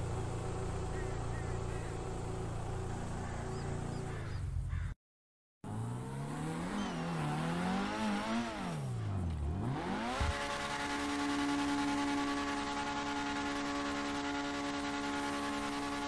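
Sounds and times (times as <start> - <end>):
sports car engine revving: 0.0 - 4.2, 5.7 - 16.0
sports car engine running: 0.0 - 4.8, 5.7 - 16.0.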